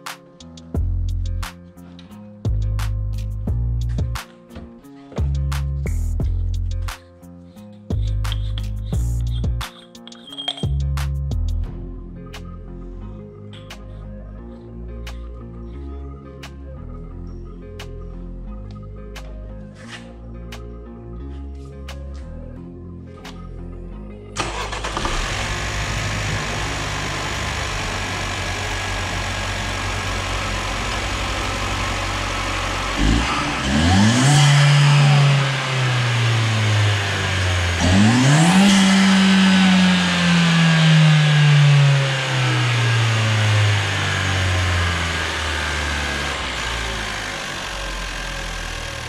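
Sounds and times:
car engine idling and revving: 24.4 - 49.0.

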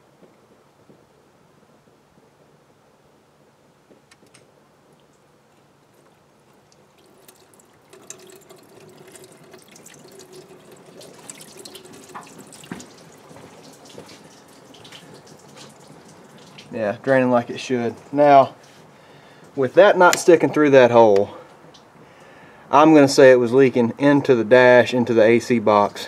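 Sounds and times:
water trickling and splattering: 5.0 - 20.4.

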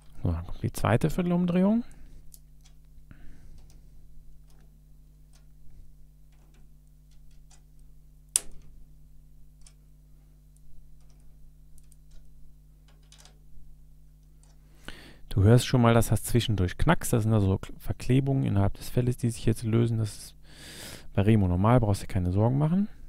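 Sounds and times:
sharp crack: 8.3 - 8.7.

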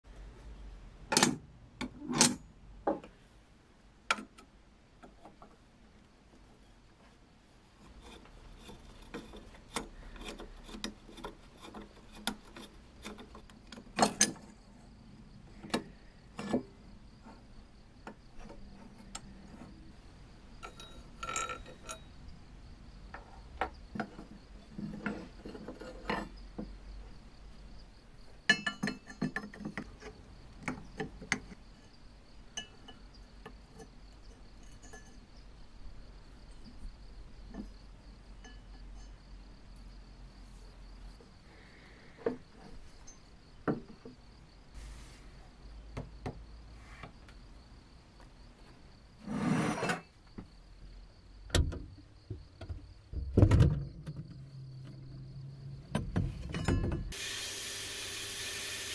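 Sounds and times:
metal parts clicking and clinking: 9.0 - 14.6, 20.6 - 22.1
faint high whine: 56.6 - 58.9.

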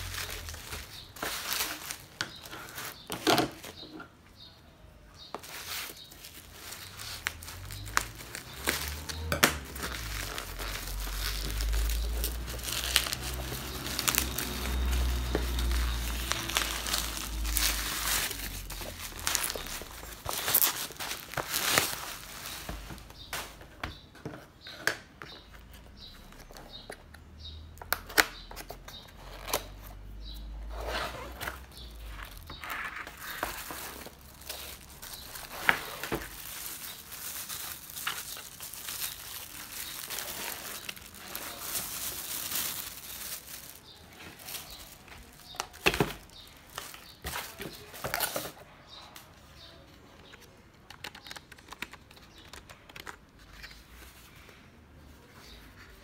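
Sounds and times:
plastic bag crinkling: 0.0 - 3.8, 5.3 - 23.4, 31.2 - 48.6.

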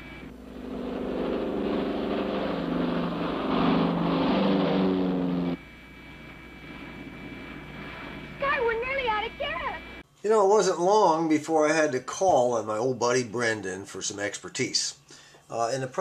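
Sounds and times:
propeller airplane engines droning: 0.0 - 10.0
faint low hum: 0.0 - 16.0.

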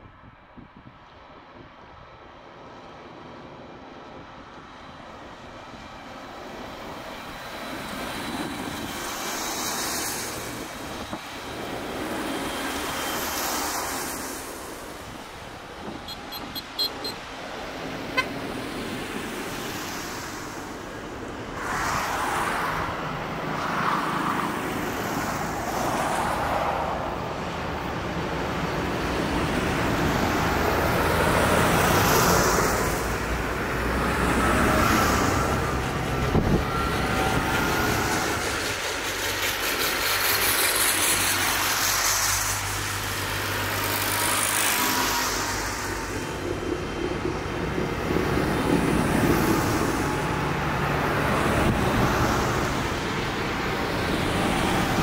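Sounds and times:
diesel tractors driving past: 10.2 - 20.9
tyre hiss on wet road: 12.0 - 15.4, 38.7 - 46.5
short high beeps: 16.0 - 17.2.

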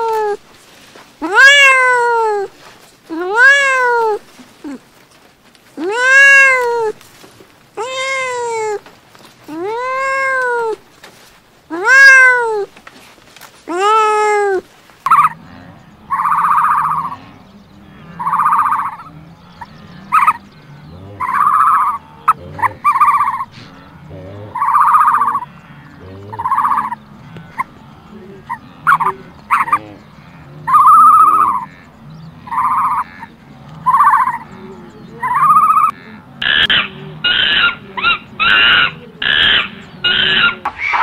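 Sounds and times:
cat meowing: 1.2 - 2.5, 3.1 - 4.2, 5.8 - 7.0, 7.8 - 8.8, 9.5 - 10.8, 11.7 - 12.7, 13.7 - 15.4
animal buzzy calls: 1.2 - 4.8, 5.8 - 7.0, 13.7 - 41.0.

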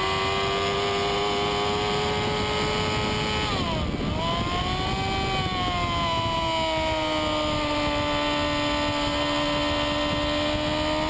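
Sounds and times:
motorcycle engine at high revs: 0.0 - 11.0.

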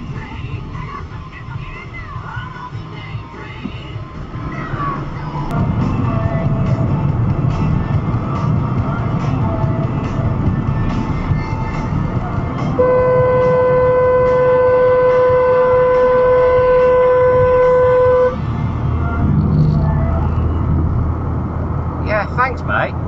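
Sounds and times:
road and engine noise: 0.0 - 23.0
car horn blast: 12.6 - 18.4.

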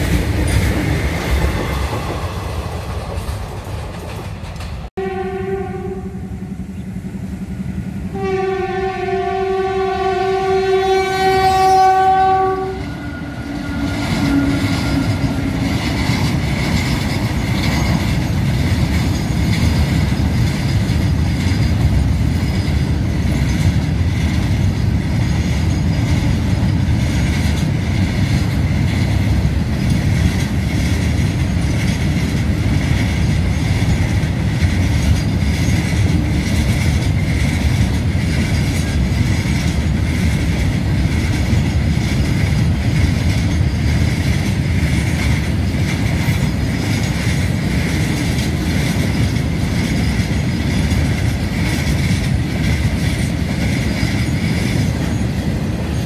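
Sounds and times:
freight train rumbling past: 0.0 - 56.0
train horn: 5.0 - 6.7, 8.0 - 15.8.

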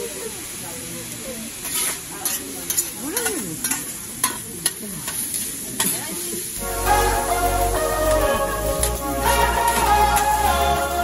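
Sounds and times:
rice sizzling on a griddle: 0.0 - 11.0
metal spatulas clacking and scraping: 1.6 - 6.1
music with heavy bass: 6.6 - 11.0.

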